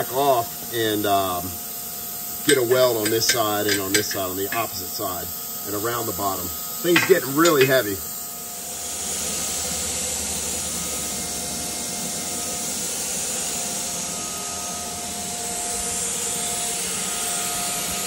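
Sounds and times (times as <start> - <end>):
steady rushing hiss: 0.0 - 9.7.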